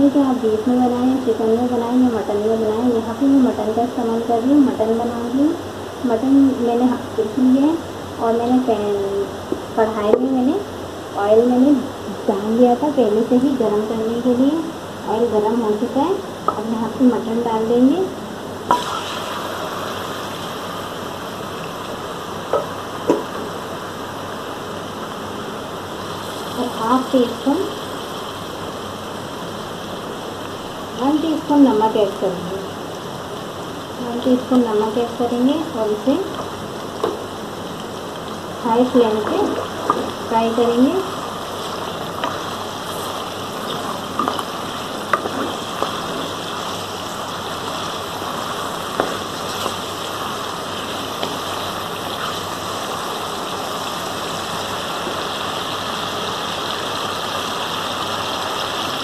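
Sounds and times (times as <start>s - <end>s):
meat sizzling in hot oil: 18.6s - 59.0s.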